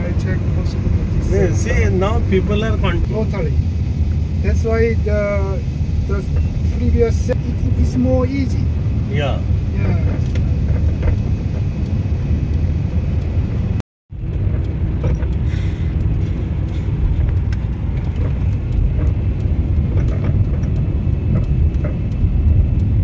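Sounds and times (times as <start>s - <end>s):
road and engine rumble: 0.0s - 23.0s.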